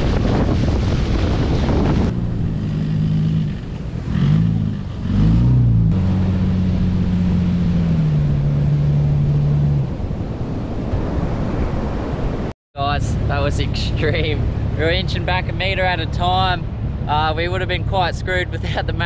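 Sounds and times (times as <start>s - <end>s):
water splashing: 0.0s - 12.3s
truck engine straining: 1.4s - 10.4s.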